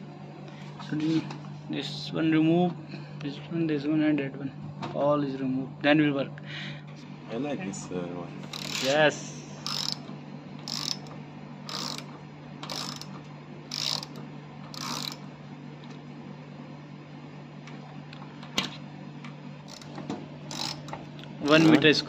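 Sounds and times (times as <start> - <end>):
steady low hum: 0.0 - 22.0
ratchet wrench clicking: 8.5 - 8.9, 9.6 - 10.0, 10.6 - 11.1, 11.7 - 13.1, 13.7 - 15.2, 19.7 - 21.8.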